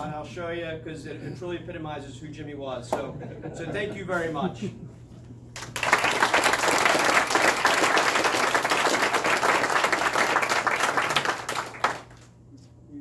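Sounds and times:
audience applauding: 0:05.6 - 0:12.3.

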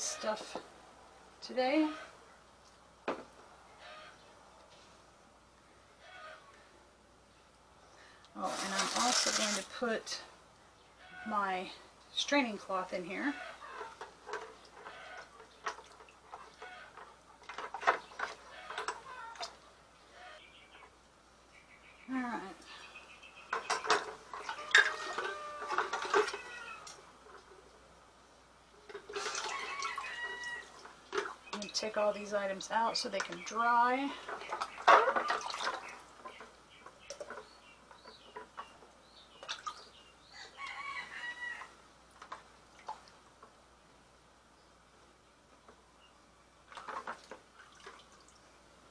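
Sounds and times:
metal utensils clinking on bucket: 0:08.4 - 0:09.8, 0:23.6 - 0:26.4
rooster crowing: 0:24.5 - 0:26.9, 0:29.3 - 0:30.8, 0:40.4 - 0:41.8
chicken calls: 0:29.1 - 0:30.9.

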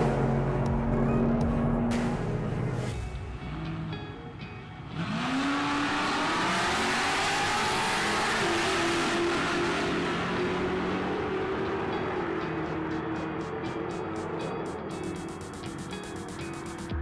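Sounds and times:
drag car engine revving: 0:04.9 - 0:14.4.

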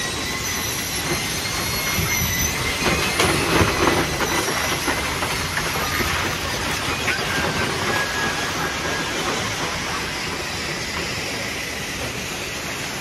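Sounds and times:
steady high squeal: 0:00.0 - 0:13.0.

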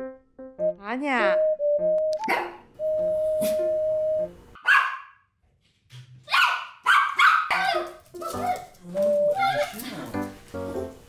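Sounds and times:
background music: 0:00.0 - 0:04.6, 0:08.2 - 0:11.0
small dog barking: 0:02.3 - 0:02.6, 0:04.6 - 0:05.2, 0:06.3 - 0:08.7.

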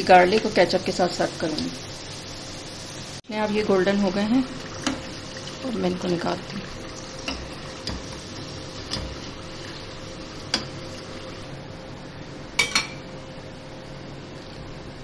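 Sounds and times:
food sizzling in hot oil: 0:00.0 - 0:11.9.

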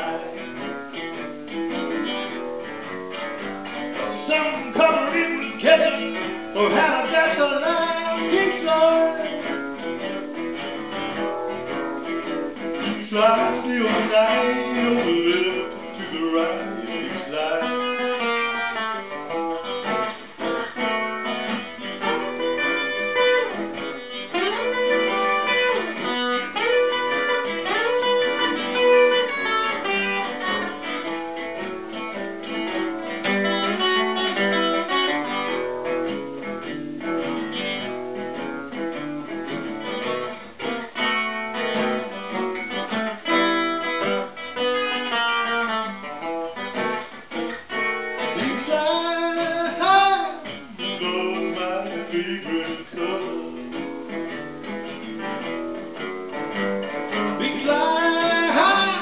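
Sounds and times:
acoustic blues guitar: 0:00.0 - 0:59.0.

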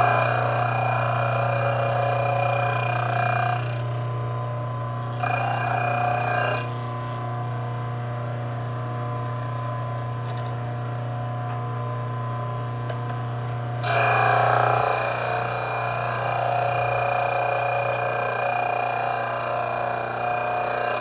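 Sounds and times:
bench grinder motor humming: 0:00.0 - 0:04.4, 0:05.0 - 0:06.8, 0:13.8 - 0:21.0
drill bit grinding whine: 0:00.0 - 0:04.4, 0:05.0 - 0:06.8, 0:13.8 - 0:21.0.

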